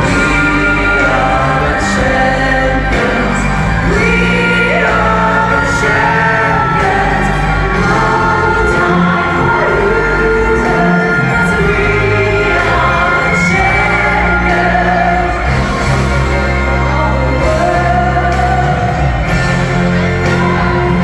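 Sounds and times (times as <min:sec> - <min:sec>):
live concert music with singing: 0:00.0 - 0:21.0.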